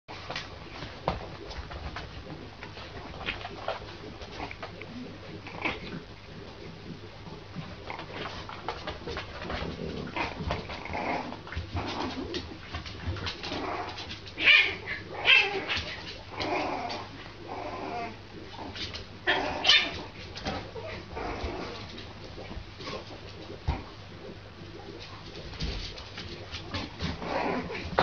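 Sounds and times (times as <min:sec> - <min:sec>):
puppy yapping and grumbling: 0:04.3 - 0:06.1, 0:09.6 - 0:12.5, 0:13.1 - 0:22.0, 0:26.7 - 0:28.0.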